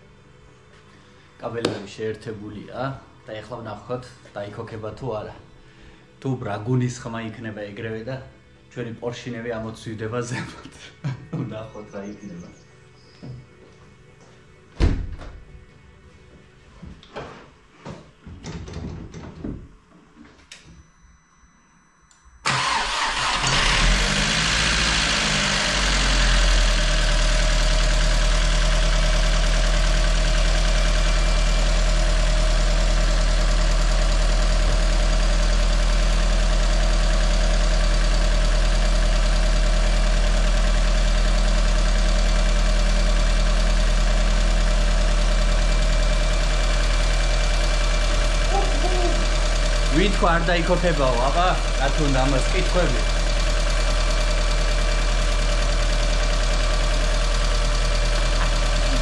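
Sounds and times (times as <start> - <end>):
car engine starting and idling: 22.4 - 59.0.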